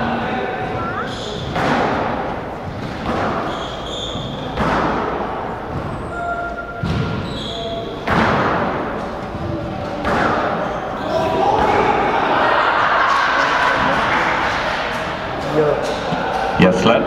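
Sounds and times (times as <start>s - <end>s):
squash ball hitting rackets and walls: 0.6s - 12.1s
shoes squeaking on wooden floor: 2.6s - 4.6s, 5.7s - 8.0s.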